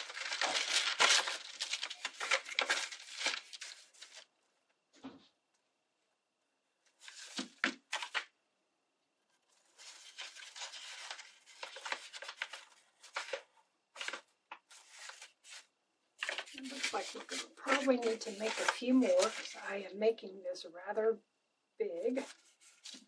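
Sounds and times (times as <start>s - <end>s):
paper rustling and crinkling: 0.0s - 4.3s, 6.9s - 8.3s, 9.3s - 19.9s, 22.0s - 23.0s.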